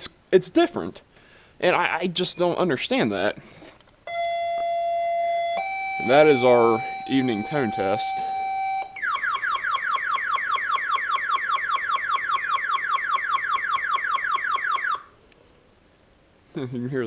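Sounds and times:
falling electronic chirps: 4.1 - 15.0.

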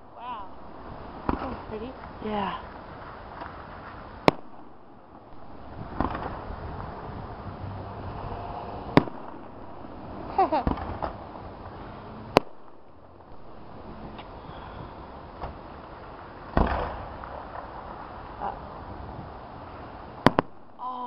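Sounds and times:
fireworks shells bursting: 0.7 - 6.7, 20.2 - 20.8
small fireworks pops: 1.2 - 6.5, 8.9 - 9.6, 10.5 - 13.2, 15.4 - 18.2, 20.2 - 21.0
cluster of cracks: 5.9 - 6.5, 15.4 - 18.2.

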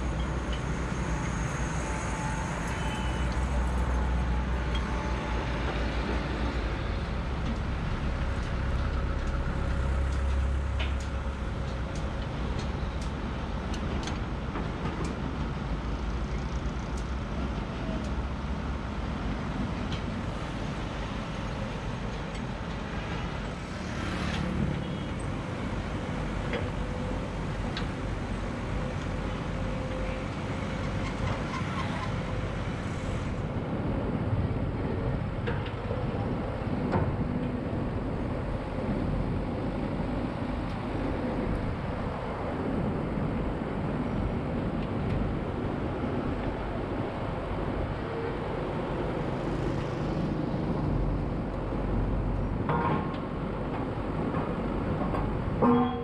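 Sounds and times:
diesel engine of drilling rig: 0.0 - 56.0
sharp metallic knocks: 55.6 - 56.0.

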